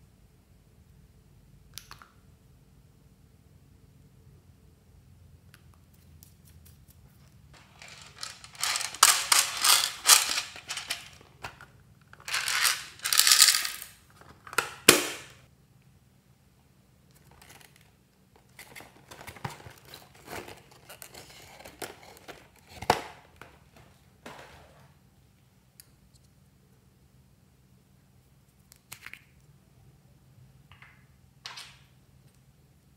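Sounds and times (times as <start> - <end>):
plastic beads rattling onto glass: 7.6 - 11.2, 12.2 - 14.0
plastic packaging rustling: 7.6 - 11.6, 12.2 - 14.5.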